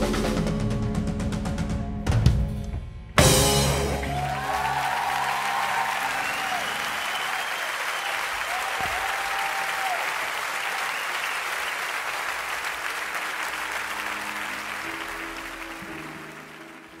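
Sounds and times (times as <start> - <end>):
audience applauding: 3.8 - 17.0.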